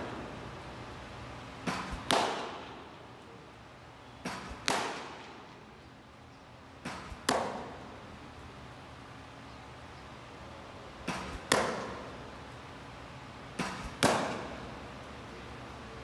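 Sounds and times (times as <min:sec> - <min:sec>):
baseball smacking into catcher's mitt: 0:01.6 - 0:02.8, 0:04.2 - 0:05.4, 0:06.8 - 0:07.8, 0:11.0 - 0:12.1, 0:13.6 - 0:14.6.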